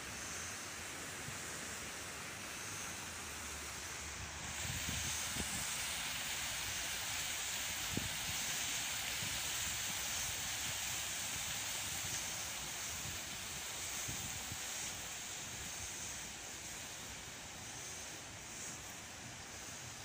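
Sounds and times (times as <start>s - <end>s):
steady hiss: 0.0s - 20.0s
wind buffeting microphone: 4.5s - 5.8s.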